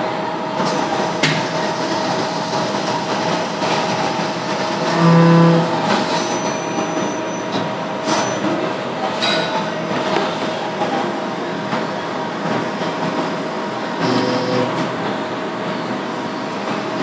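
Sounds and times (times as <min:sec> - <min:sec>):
lathe whining: 0:04.7 - 0:06.2, 0:14.0 - 0:15.0.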